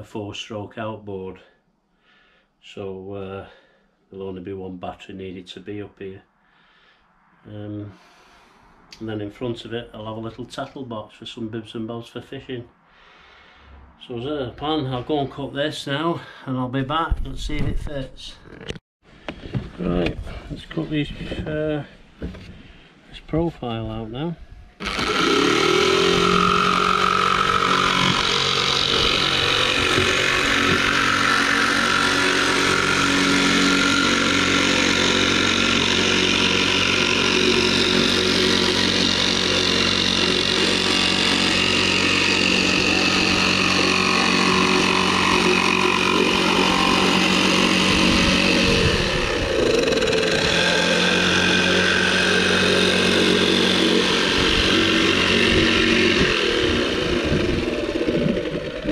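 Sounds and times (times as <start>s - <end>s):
electric jigsaw cutting wood: 24.8s - 58.9s.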